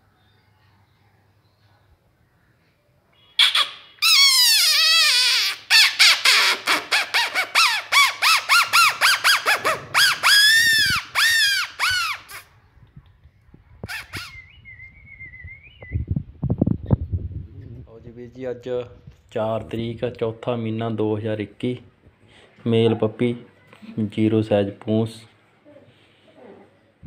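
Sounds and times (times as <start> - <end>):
puppy yelping and whining: 4.0 - 12.5, 26.3 - 26.8
low thumps: 12.7 - 17.9.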